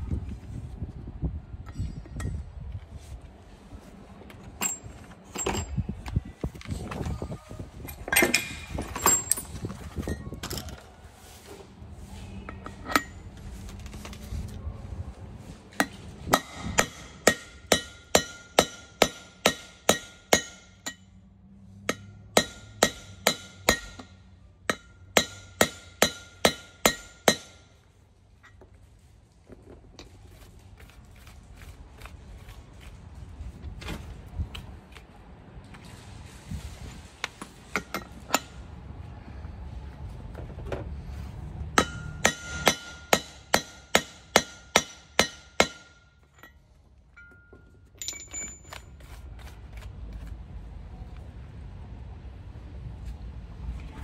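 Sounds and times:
metal parts clanking and scraping: 4.3 - 11.0, 12.4 - 14.3, 37.4 - 38.7, 45.9 - 49.1
hammer striking metal drift: 15.8 - 21.2, 21.8 - 27.8, 41.7 - 46.6.

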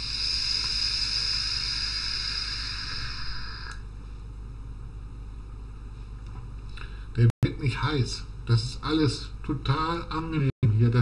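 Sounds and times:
hiss of air and vapour: 0.0 - 3.9.

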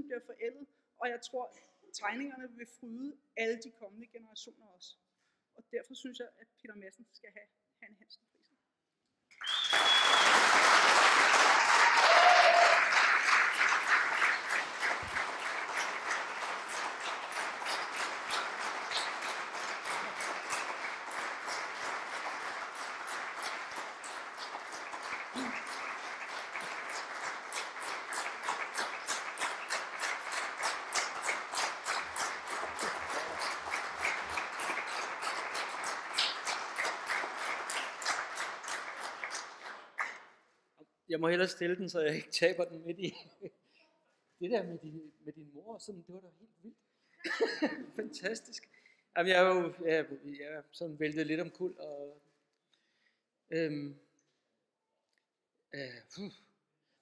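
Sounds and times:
audience applauding: 9.4 - 40.3.

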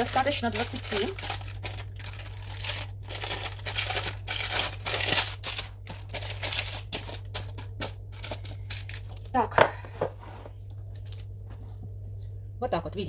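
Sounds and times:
baking paper crinkling: 0.0 - 9.4
steady low hum: 0.0 - 13.0.

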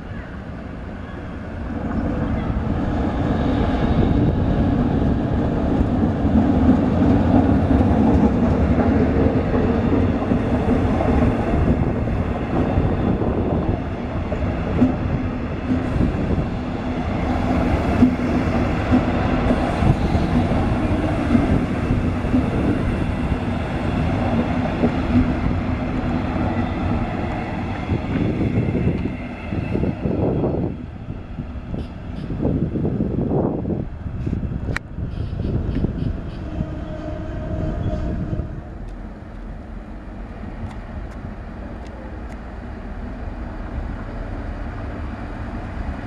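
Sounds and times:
diesel locomotive engine: 0.0 - 46.0
train wheels clicking on rail joints: 13.8 - 29.7.

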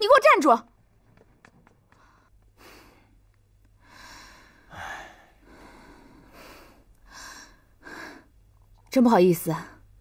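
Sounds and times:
person breathing softly: 3.8 - 8.4.

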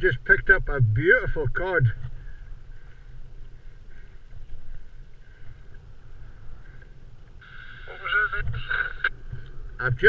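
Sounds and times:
wind rumbling on microphone: 0.0 - 10.0.

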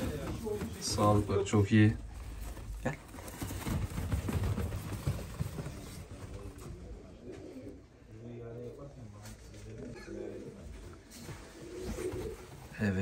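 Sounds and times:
pigeons flapping wings: 0.0 - 1.7, 2.3 - 7.0.

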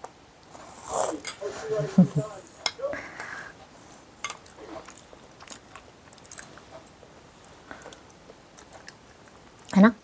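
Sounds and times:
toddler chewing food: 3.9 - 9.8.

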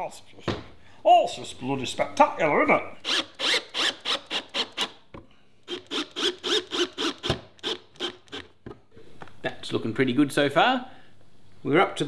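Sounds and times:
cordless drill driving screws: 3.0 - 5.0, 5.7 - 8.6.

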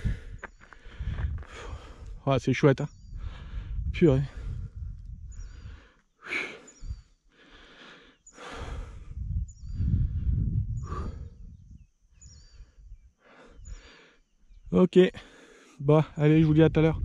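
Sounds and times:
person breathing hard: 0.0 - 2.2, 3.2 - 11.7, 12.5 - 14.3, 15.2 - 15.8
wind buffeting microphone: 0.0 - 6.0, 6.6 - 13.9, 16.0 - 17.0.

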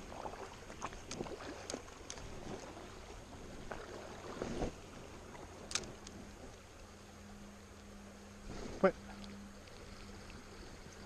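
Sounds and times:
faint steady hum: 0.0 - 11.0
shallow river water running: 0.0 - 11.0.

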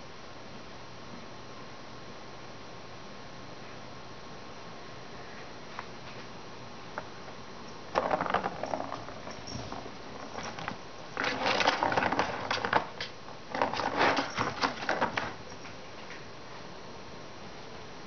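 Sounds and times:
ball rattling around plastic track: 7.9 - 15.7.

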